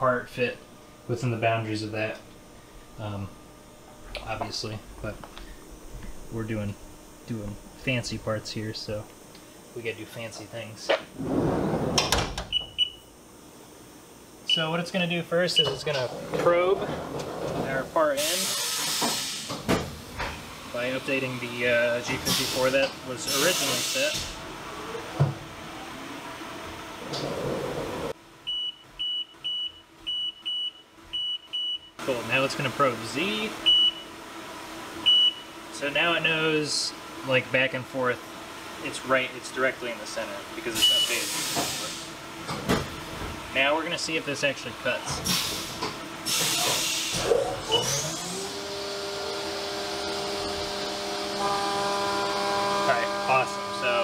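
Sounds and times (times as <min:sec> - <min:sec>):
hissing coolant spray: 0:22.2 - 0:24.3, 0:40.7 - 0:42.2, 0:45.2 - 0:47.3
machine spindle whine: 0:46.3 - 0:54.0.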